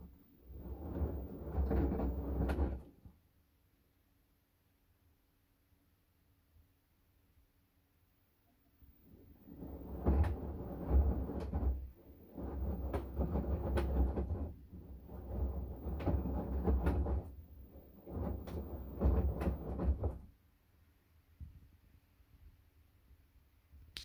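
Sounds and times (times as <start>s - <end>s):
laundry tumbling in washing machine: 0.0s - 3.2s, 9.0s - 20.3s.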